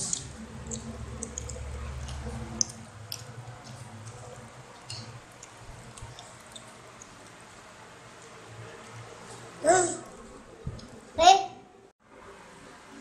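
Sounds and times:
wet chewing and lip smacks: 0:00.1 - 0:07.5.

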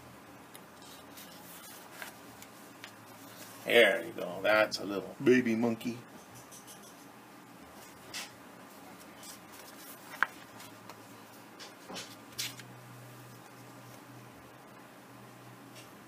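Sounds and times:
faint low hum: 0:00.0 - 0:16.0
book pages rustling: 0:00.8 - 0:03.7, 0:09.0 - 0:12.7.

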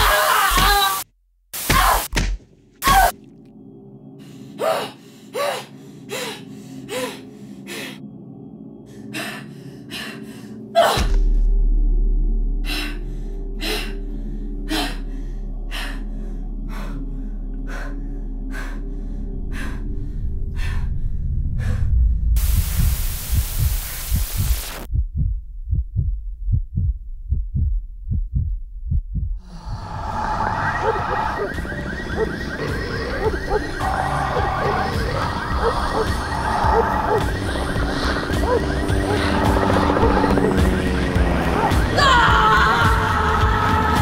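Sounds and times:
low film score drone: 0:03.1 - 0:23.3, 0:29.4 - 0:44.0
hiss burst: 0:22.4 - 0:24.9.

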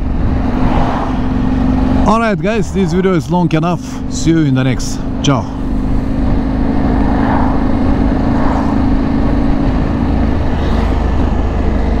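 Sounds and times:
wind noise on microphone: 0:00.0 - 0:02.9
motorcycle engine cruising: 0:00.0 - 0:12.0.

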